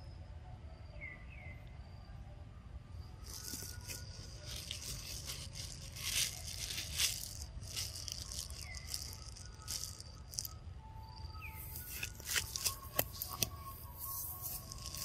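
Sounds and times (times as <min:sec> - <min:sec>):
high insect whine: 0:00.0 - 0:15.0
crisp crunching and rustling: 0:03.2 - 0:10.6, 0:11.4 - 0:15.0.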